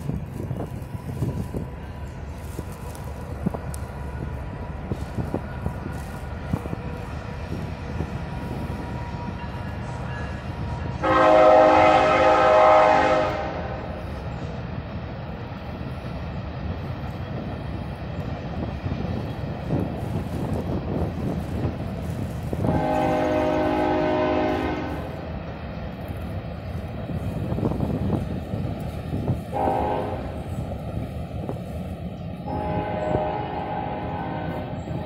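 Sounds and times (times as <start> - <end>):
steady low rumble: 0.0 - 11.1
locomotive air horn blast: 11.0 - 14.0, 22.6 - 25.2, 29.5 - 30.5, 32.5 - 34.8.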